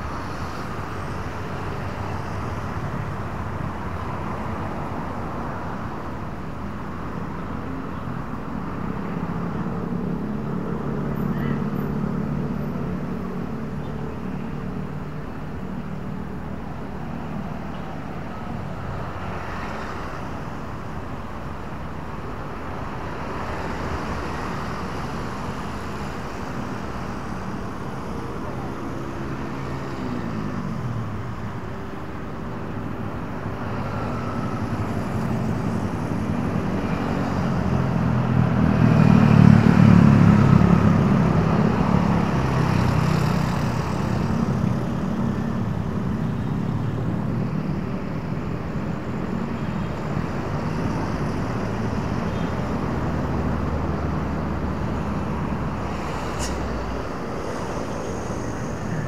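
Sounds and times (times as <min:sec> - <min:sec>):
cars and motorbikes passing: 0:00.0 - 0:59.0
loud vehicle passing close: 0:33.9 - 0:45.8.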